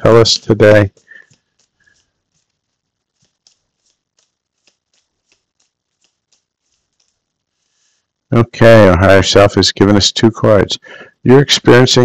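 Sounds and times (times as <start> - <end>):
cards shuffling: 0.4 - 8.2.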